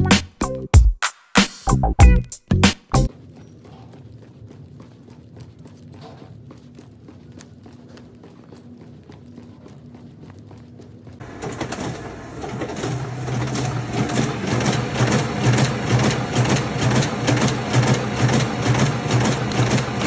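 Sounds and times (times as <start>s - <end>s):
duplicator machine strokes: 11.2s - 20.0s.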